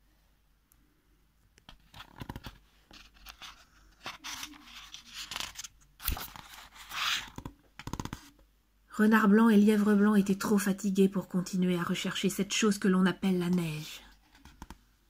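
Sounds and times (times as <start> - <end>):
book pages turning: 1.7 - 8.3.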